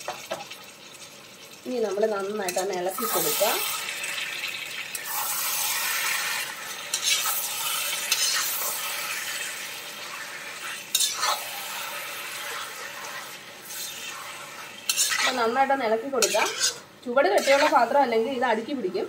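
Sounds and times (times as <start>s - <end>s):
oil sizzling: 0.0s - 19.0s
metal spatula scraping pot: 5.0s - 18.2s.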